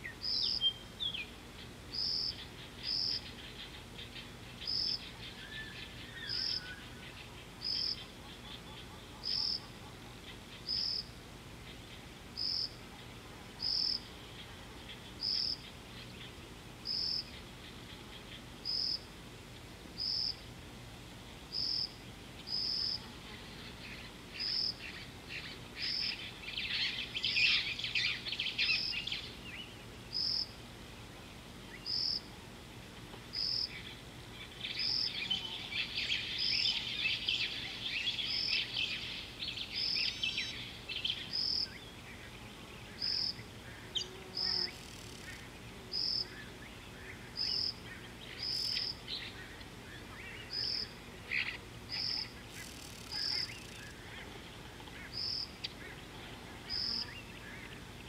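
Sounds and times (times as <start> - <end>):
bird song: 0.0 - 20.4, 21.5 - 32.3, 33.3 - 58.0.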